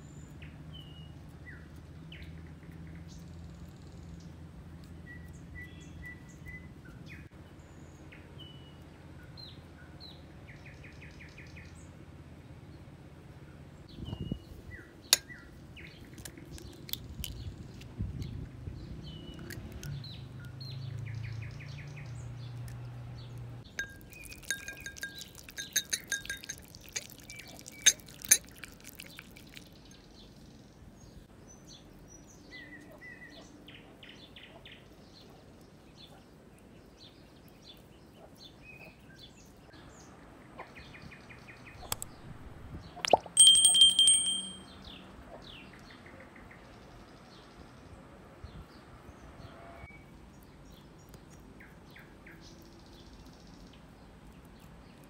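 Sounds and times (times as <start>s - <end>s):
birds chirping: 14.0s - 30.6s, 40.8s - 44.8s
whisk clinking against glass bowl: 23.8s - 29.2s, 43.1s - 44.6s
short bright ring: 43.4s - 44.7s.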